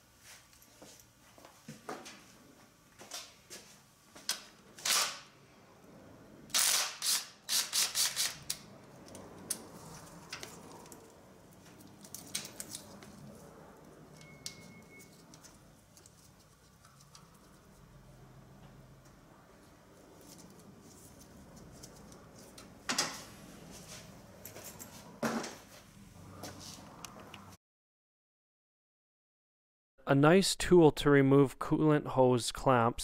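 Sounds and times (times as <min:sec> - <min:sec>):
hand tools clicking and clattering: 0:11.7 - 0:13.2.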